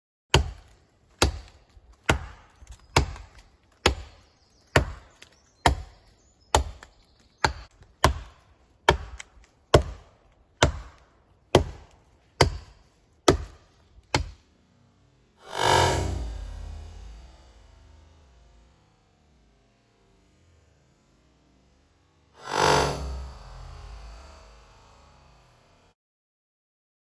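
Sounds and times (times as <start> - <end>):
axe chopping into tree trunk: 0.3 - 14.4.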